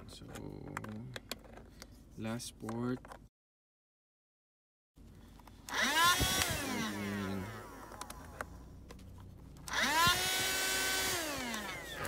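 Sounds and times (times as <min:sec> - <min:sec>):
handheld vacuum motor whining: 0:05.6 - 0:08.6, 0:09.6 - 0:12.0.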